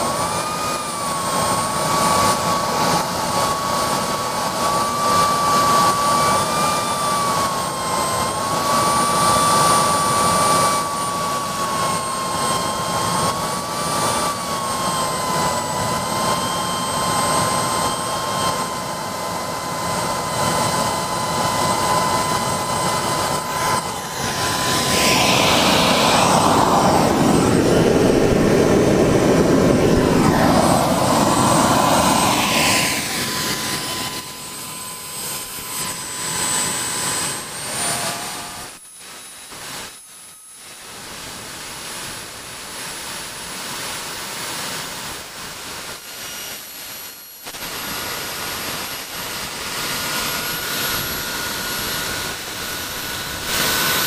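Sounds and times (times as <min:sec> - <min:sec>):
jet engine high whine: 0:00.0 - 0:54.0
rushing roar: 0:24.4 - 0:33.2.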